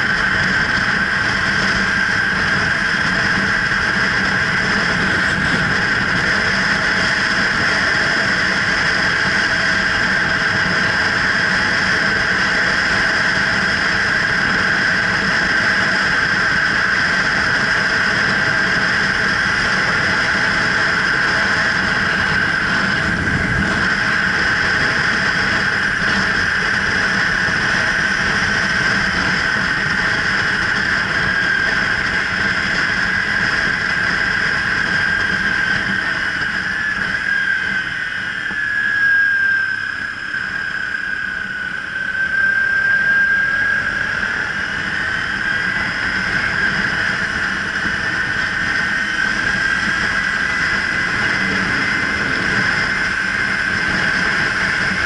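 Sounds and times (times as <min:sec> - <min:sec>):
motorcycle engine cruising: 0:00.0 - 0:09.0, 0:43.8 - 0:55.0
high whine: 0:00.0 - 0:55.0.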